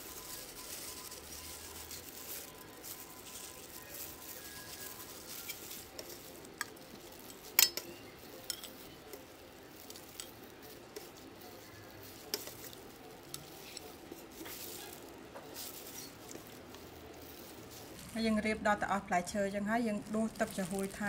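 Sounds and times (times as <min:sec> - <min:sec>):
faint pouring hiss: 0:00.0 - 0:21.0
metal ladle clinking on glass: 0:07.6 - 0:08.8.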